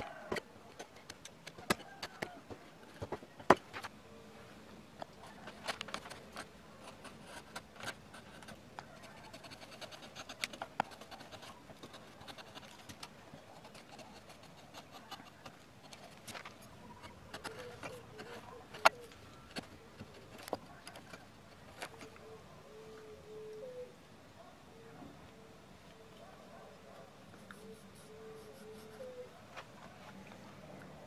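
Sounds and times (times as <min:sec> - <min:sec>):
chisel scraping wood: 0:09.2 - 0:21.2.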